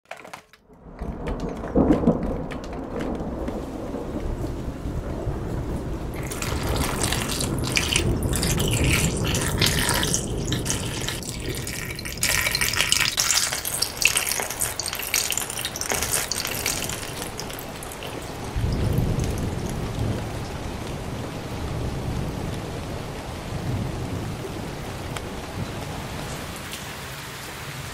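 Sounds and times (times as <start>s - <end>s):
water splashing into glass bowl: 6.2s - 19.8s.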